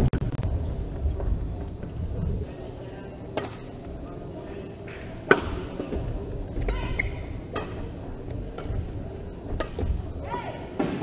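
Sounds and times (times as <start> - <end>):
sports hall hum: 0.0 - 11.0
rackets hitting shuttlecock: 4.9 - 5.9, 6.6 - 7.9, 9.5 - 10.0.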